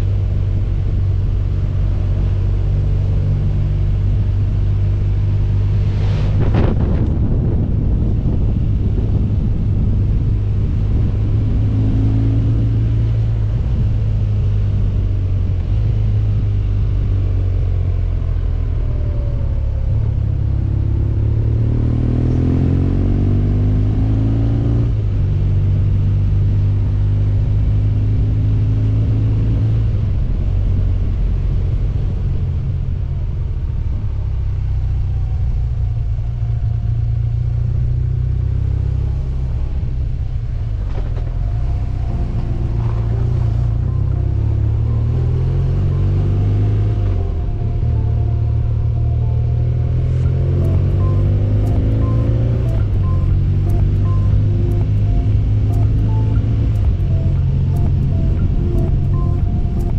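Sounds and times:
motorcycle engine running: 39.6 - 59.9.

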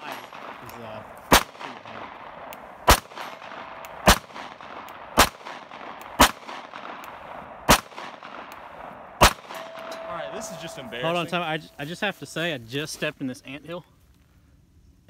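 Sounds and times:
pistol shots: 0.0 - 10.0.

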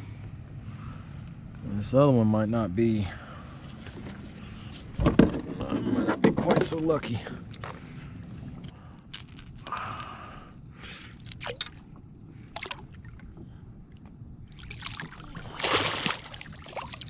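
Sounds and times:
water sloshing and splashing: 11.1 - 17.0.

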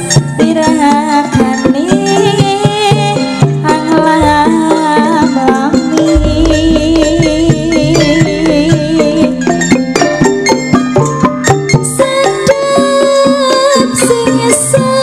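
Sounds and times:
traditional ensemble music: 3.6 - 11.7
deep low note: 4.2 - 4.8, 6.1 - 9.6
sharp drum strokes: 4.2 - 5.5, 6.1 - 10.7.

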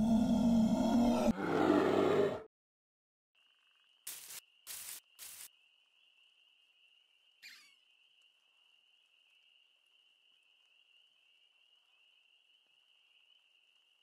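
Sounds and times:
cricket-like chirring: 3.4 - 14.0
falling squeak: 7.4 - 7.8.

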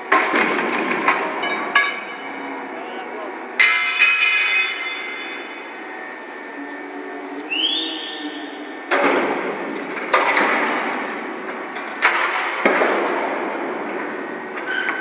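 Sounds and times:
heavy steel clanks with echo: 0.0 - 2.7, 3.5 - 6.1.

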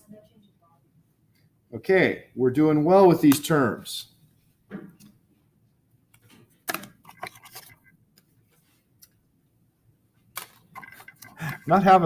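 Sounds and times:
cards clicking and rustling: 6.1 - 8.4, 10.3 - 11.8.

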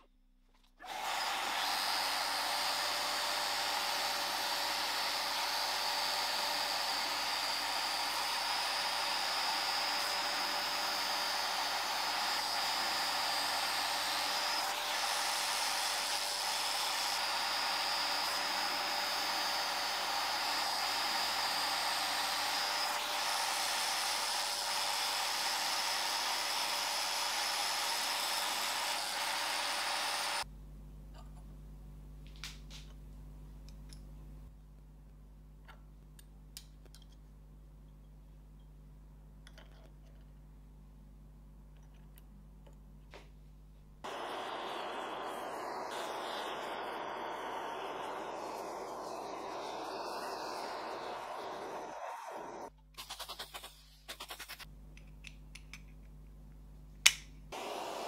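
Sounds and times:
cutter hissing on metal: 0.8 - 30.5, 44.0 - 54.7, 57.5 - 58.0
spindle motor whine: 44.0 - 52.7.

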